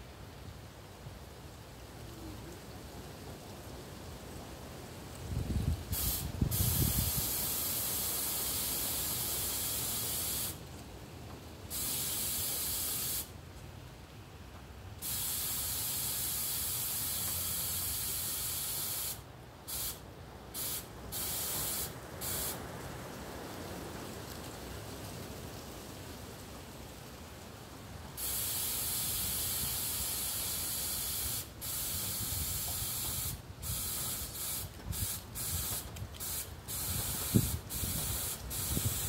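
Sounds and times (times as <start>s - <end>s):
spraying hiss: 5.2s - 10.7s, 11.7s - 13.4s, 15.0s - 22.7s, 28.1s - 39.0s.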